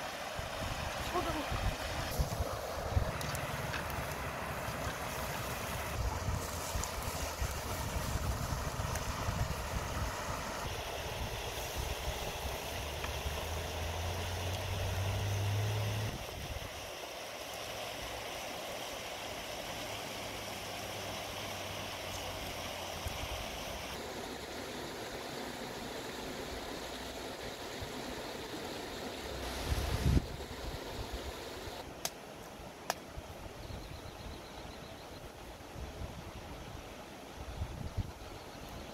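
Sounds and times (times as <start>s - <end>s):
river running over stones: 0.0s - 33.6s
wind rumble on microphone: 5.7s - 10.6s, 29.5s - 30.8s.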